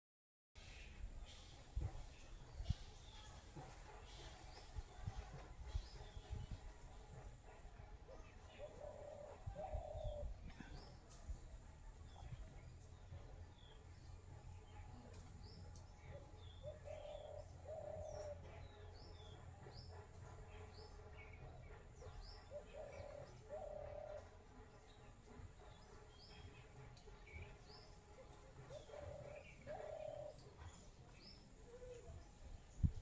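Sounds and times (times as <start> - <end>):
low warbling bird calls: 15.4 - 19.3, 22.1 - 24.3.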